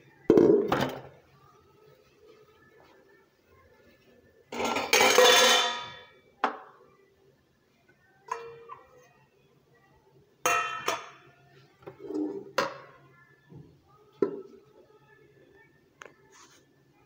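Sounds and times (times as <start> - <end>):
steel dishes clanking: 4.6 - 6.0.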